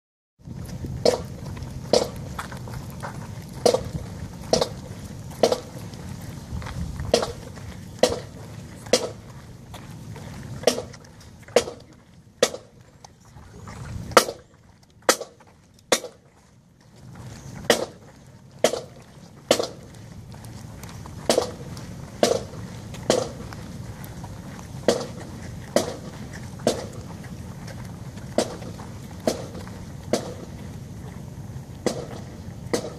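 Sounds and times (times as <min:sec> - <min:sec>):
faint low rumble: 0:00.4 - 0:32.9
percussive clicks in marching beat: 0:01.9 - 0:02.3, 0:03.6 - 0:05.9, 0:07.1 - 0:09.2, 0:12.4 - 0:12.8, 0:15.1 - 0:16.2, 0:18.6 - 0:19.9, 0:21.3 - 0:23.4, 0:24.8 - 0:27.3, 0:28.4 - 0:30.6, 0:31.8 - 0:32.9.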